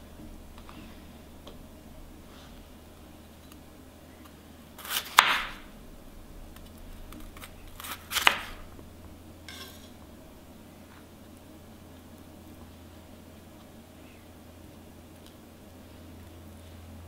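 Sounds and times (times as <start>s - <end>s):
knife crunching through food: 4.8s - 5.6s, 6.6s - 8.7s.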